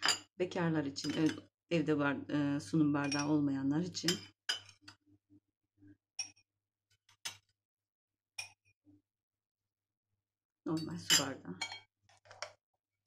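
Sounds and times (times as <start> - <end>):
metal spoon clinking on glass: 4.1 - 4.9, 8.4 - 8.6, 10.7 - 11.9.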